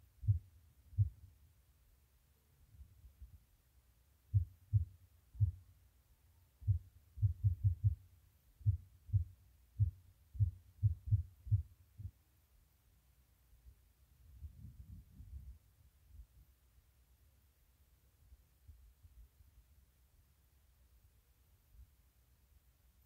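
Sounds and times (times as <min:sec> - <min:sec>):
low dull thumps: 0:06.6 - 0:08.0, 0:08.6 - 0:12.2.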